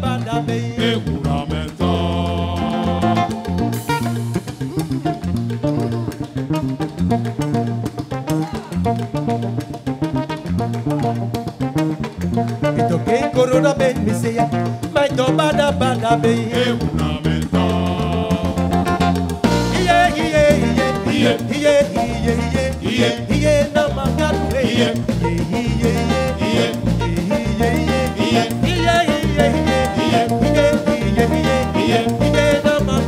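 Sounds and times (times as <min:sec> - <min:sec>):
person singing: 0:00.0 - 0:03.6, 0:04.4 - 0:06.4, 0:15.2 - 0:18.9, 0:19.6 - 0:33.0
live band playing upbeat groove: 0:00.0 - 0:33.0.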